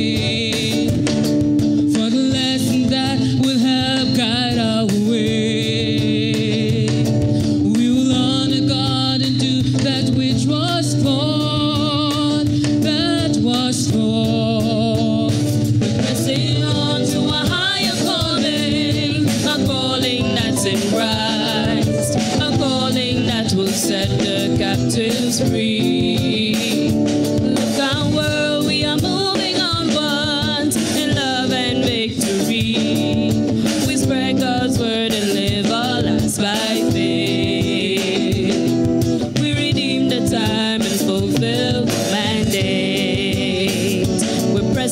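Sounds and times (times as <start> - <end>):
instrumental accompaniment with drums: 0.0 - 44.9
group singing gospel song: 13.4 - 44.9.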